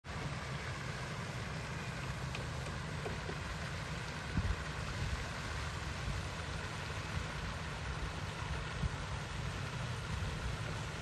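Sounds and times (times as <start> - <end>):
fountain water rushing: 0.0 - 11.0
wind buffeting microphone: 4.2 - 11.0.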